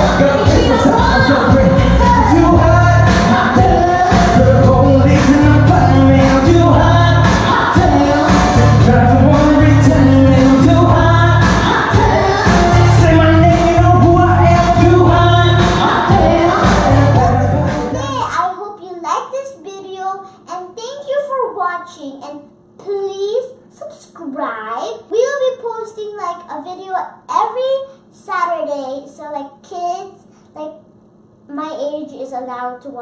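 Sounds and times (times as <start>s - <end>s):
heavy bass beat: 0.0s - 18.3s
voices singing pop song: 0.0s - 18.3s
amplified backing track: 0.0s - 18.4s.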